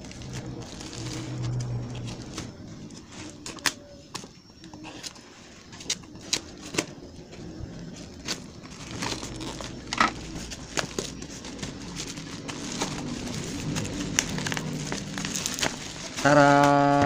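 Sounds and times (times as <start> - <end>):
plastic wrap crinkling: 0.0 - 4.3, 7.8 - 17.0.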